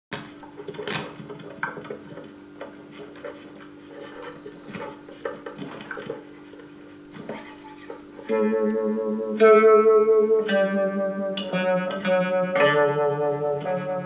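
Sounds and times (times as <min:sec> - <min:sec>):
guitar handling clicks and knocks: 0:00.1 - 0:08.8
amplifier hum: 0:00.1 - 0:14.0.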